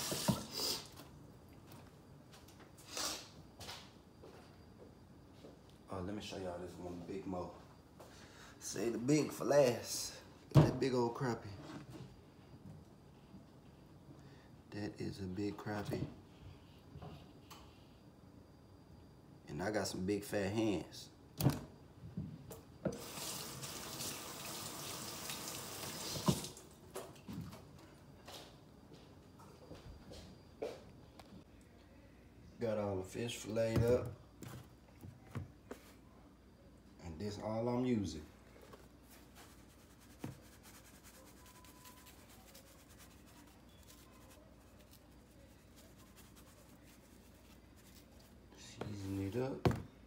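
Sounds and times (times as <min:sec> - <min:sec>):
kitchen faucet running: 0:00.0 - 0:00.5, 0:22.9 - 0:26.6
seasoning shaken from shaker bottle: 0:39.2 - 0:48.4.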